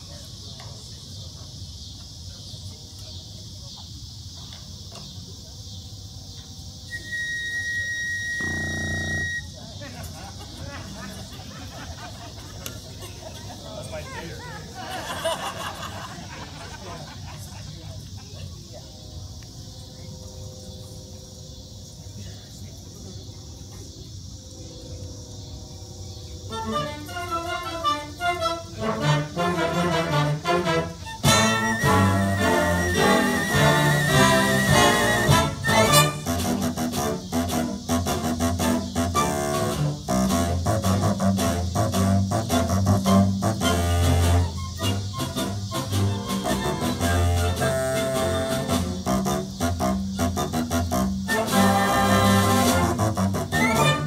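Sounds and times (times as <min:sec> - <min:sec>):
insects chirring: 0:00.0 - 0:54.0
high held tone: 0:06.9 - 0:09.6, 0:31.2 - 0:36.2.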